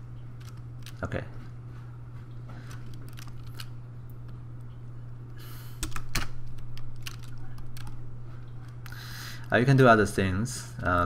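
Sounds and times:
steady low hum: 0.0 - 11.0
keyboard and mouse clicks: 0.4 - 1.1, 2.6 - 4.8, 5.8 - 9.6.

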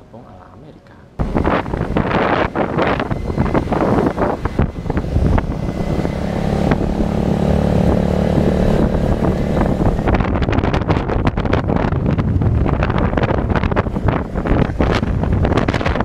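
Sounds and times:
motorcycle engine hum: 1.2 - 16.0
wind buffeting microphone: 1.2 - 16.0.

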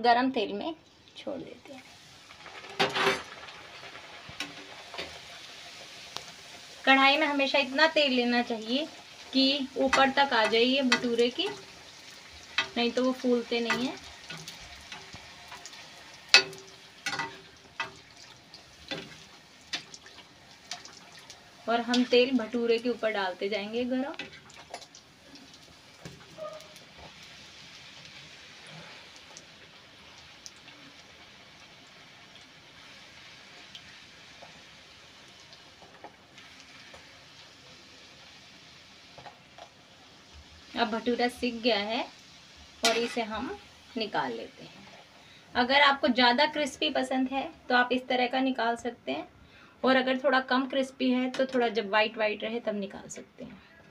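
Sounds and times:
deep-frying hiss in oil: 0.2 - 53.9
metal spoon splashing oil: 8.4 - 27.3, 42.8 - 43.6.

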